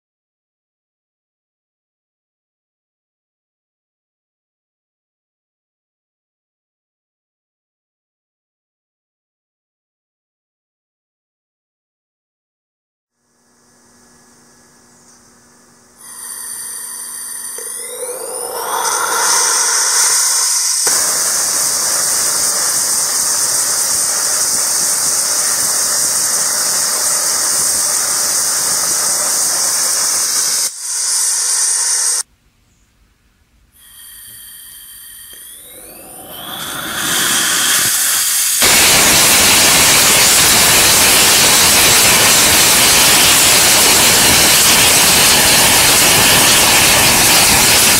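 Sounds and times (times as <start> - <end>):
rocket engine hissing roar: 16.0 - 32.2, 33.8 - 47.9
rocket engine rising whines: 16.0 - 32.2, 33.9 - 47.9.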